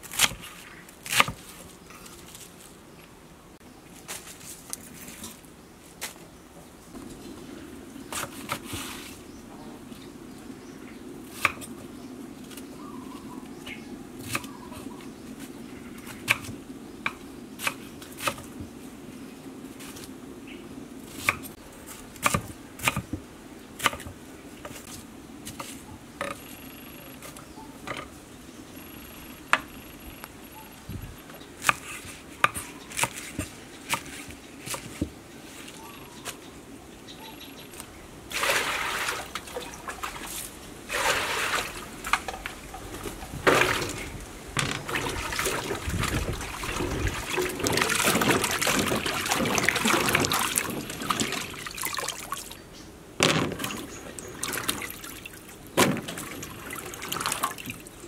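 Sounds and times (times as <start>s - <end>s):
water running through colander: 38.3s - 52.5s, 53.6s - 58.0s
water sloshing in steel bowl: 38.3s - 52.5s.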